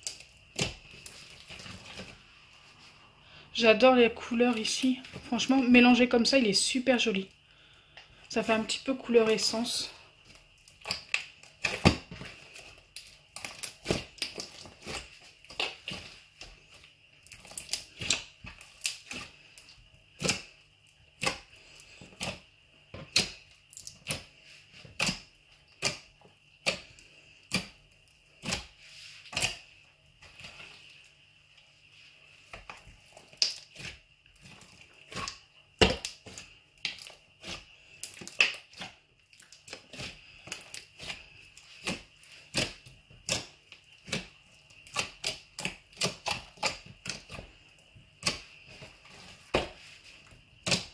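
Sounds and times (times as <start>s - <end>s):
slime clicking and popping: 33.3s - 33.9s.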